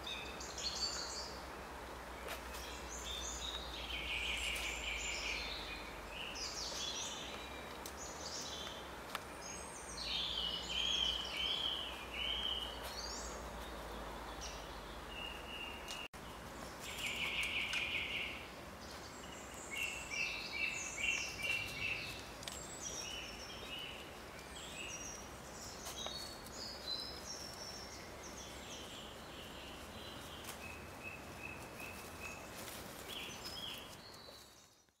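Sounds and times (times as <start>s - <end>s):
steady background hiss: 0.0s - 34.8s
birds chirping and trilling: 0.0s - 35.0s.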